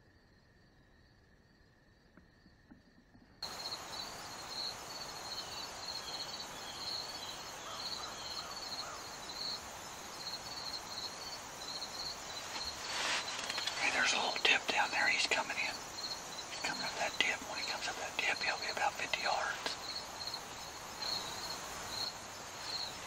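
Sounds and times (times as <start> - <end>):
insects chirping in pulses: 3.4 - 23.0
soft hiss: 3.4 - 23.0.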